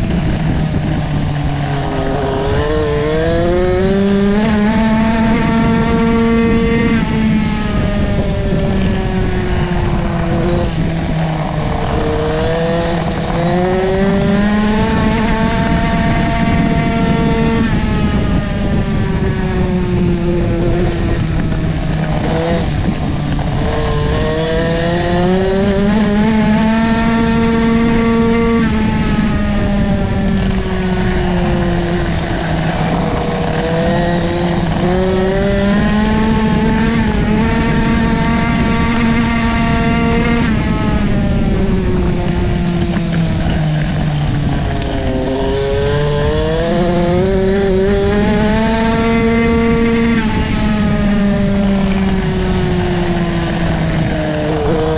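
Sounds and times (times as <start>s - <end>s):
motorcycle engine revving: 0.0s - 54.9s
wind and dirt noise: 0.0s - 54.9s.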